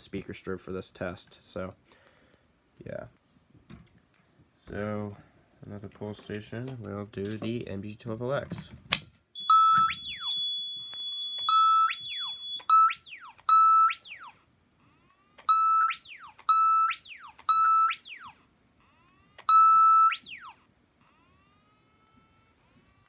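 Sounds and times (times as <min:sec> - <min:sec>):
steady high beep: 0:09.4 - 0:13.9
electronic siren blasts: 0:09.4 - 0:23.0.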